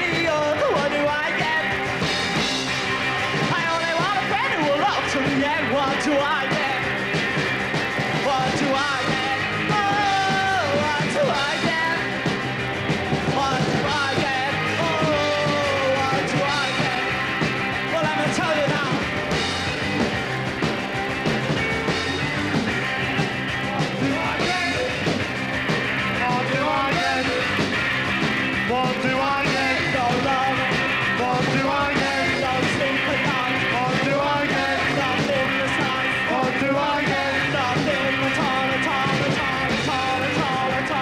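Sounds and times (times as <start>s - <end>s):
man singing: 0.0s - 1.8s, 3.3s - 7.0s, 8.1s - 12.2s, 13.2s - 19.1s, 23.6s - 25.1s, 26.0s - 27.8s, 28.6s - 41.0s
punk rock band playing live: 0.0s - 41.0s.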